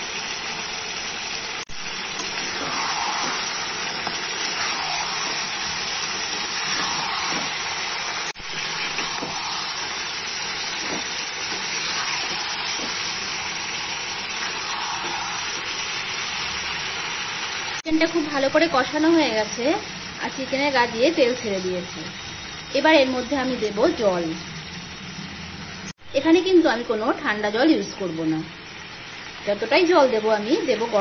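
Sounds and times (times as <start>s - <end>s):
chicken sizzling in hot oil: 0.0s - 31.0s
spatula stirring in pan: 1.9s - 16.4s.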